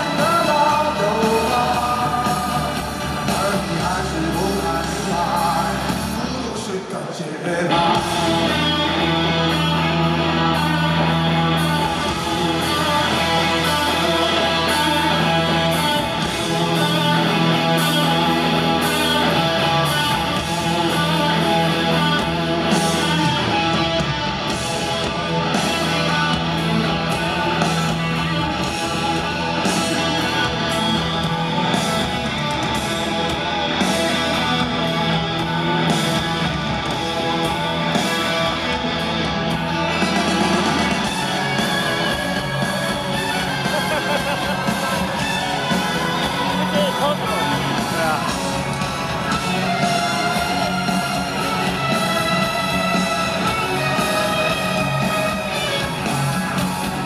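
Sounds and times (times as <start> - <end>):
bass guitar: 0.0 - 57.0
drums: 0.0 - 57.0
electric guitars: 0.0 - 57.0.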